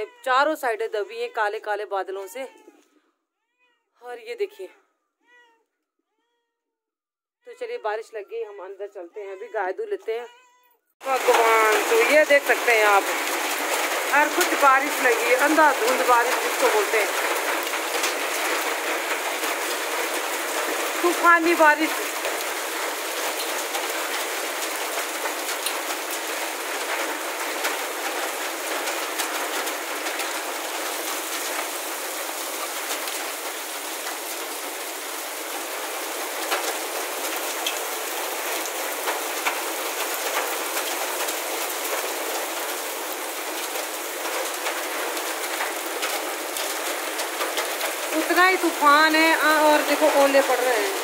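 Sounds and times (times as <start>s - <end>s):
hail ticking: 11.0s - 51.0s
heavy rain pouring: 11.0s - 51.0s.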